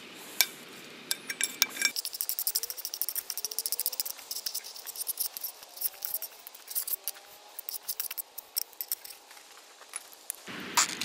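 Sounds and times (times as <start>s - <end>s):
knife scraping against plate: 1.1s - 9.2s.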